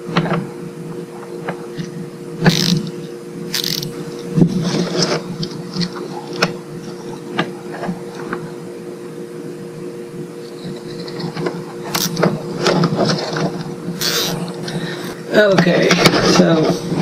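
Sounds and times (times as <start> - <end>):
steady low hum: 0.0 - 17.0
cable tie clicking and rustling: 2.4 - 3.9.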